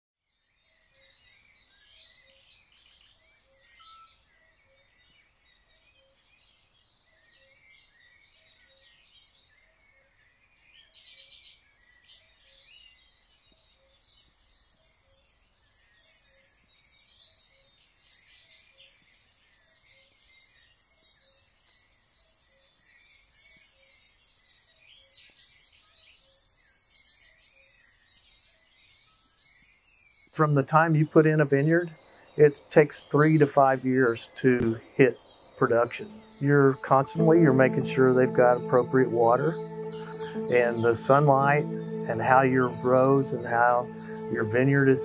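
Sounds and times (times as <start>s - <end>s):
songbirds chirping and calling: 24.3s - 45.0s.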